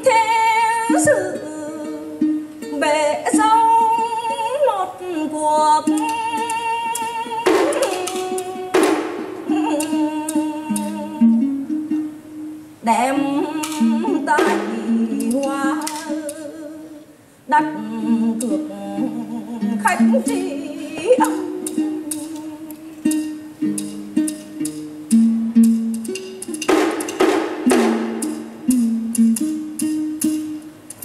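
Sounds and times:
person singing with vibrato: 0:00.0 - 0:24.9
plucked lute melody: 0:00.0 - 0:31.0
drum and clapper strikes: 0:07.5 - 0:10.9, 0:14.4 - 0:16.4, 0:23.1 - 0:31.0.

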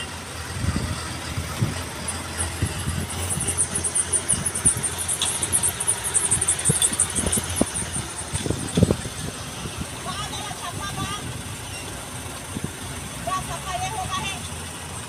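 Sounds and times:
heavy trucks driving past: 0:00.0 - 0:15.0
rapid high-pitched chirping: 0:03.2 - 0:08.2.

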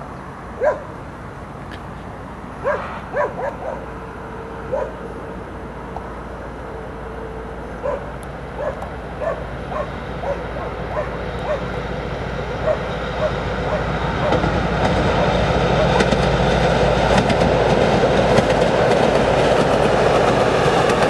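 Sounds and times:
dog barking in sharp yaps: 0:02.6 - 0:03.8.

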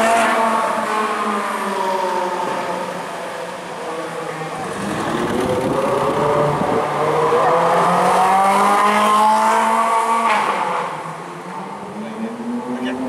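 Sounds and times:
sports car engine accelerating: 0:04.5 - 0:13.0.

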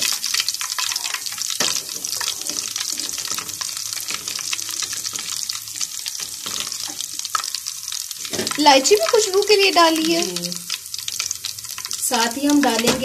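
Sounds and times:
spices sizzling in hot ghee: 0:00.0 - 0:13.0.

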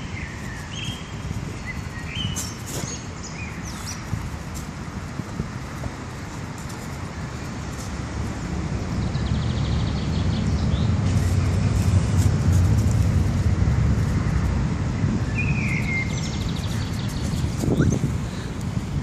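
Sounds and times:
birds chirping: 0:00.0 - 0:04.2, 0:08.9 - 0:11.8, 0:15.0 - 0:18.6.

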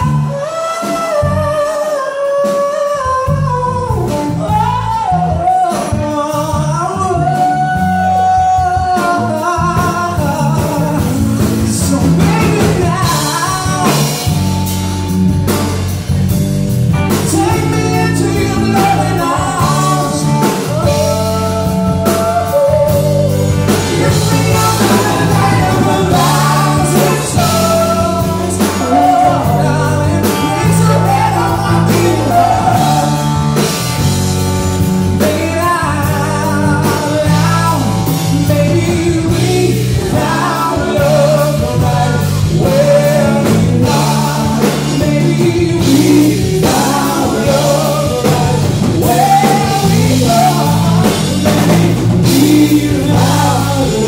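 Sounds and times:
man singing: 0:00.0 - 0:14.8, 0:17.0 - 0:54.0
live rock band playing: 0:00.0 - 0:54.0.

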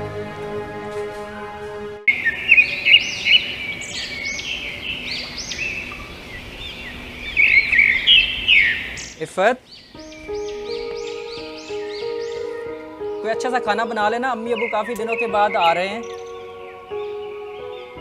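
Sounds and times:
soft background music: 0:00.0 - 0:05.6, 0:09.9 - 0:18.0
many birds chirping: 0:02.1 - 0:18.0.

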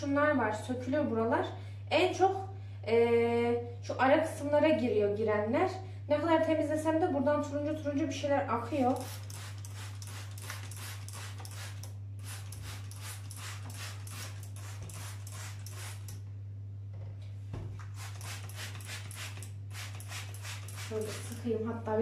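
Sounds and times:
spray bottle squirting: 0:08.9 - 0:16.2, 0:17.8 - 0:21.4.

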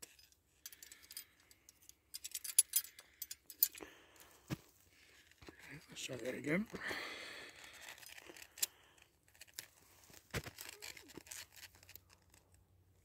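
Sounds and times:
steel cable clicks and scrapes: 0:00.0 - 0:03.8, 0:07.5 - 0:13.0.

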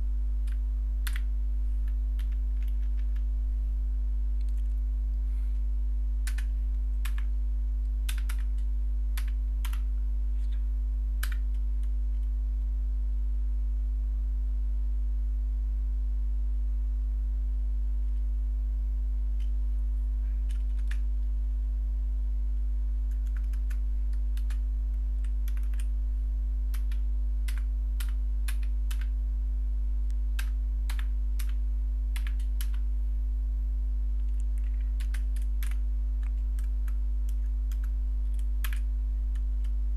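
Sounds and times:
steady low hum: 0:00.0 - 0:39.9
keyboard typing: 0:00.4 - 0:03.3, 0:06.2 - 0:07.3, 0:08.0 - 0:10.6, 0:11.2 - 0:12.3, 0:20.4 - 0:21.1, 0:23.1 - 0:24.6, 0:25.2 - 0:25.9, 0:26.7 - 0:29.1, 0:30.4 - 0:32.8, 0:34.2 - 0:39.8.

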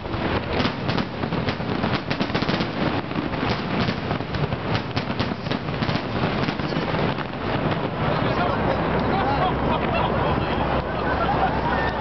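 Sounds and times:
crackling fireworks pops: 0:00.0 - 0:09.1.

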